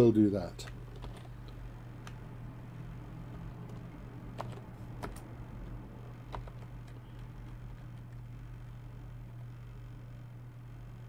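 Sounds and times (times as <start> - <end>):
steady low hum: 0.0 - 11.0
computer mouse and keyboard clicks: 0.6 - 2.2, 3.3 - 8.2.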